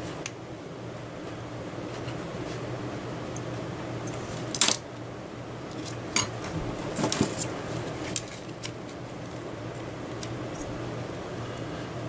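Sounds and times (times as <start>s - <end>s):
steady low hum: 0.0s - 12.0s
plastic fan clicks and taps: 9.8s - 10.4s.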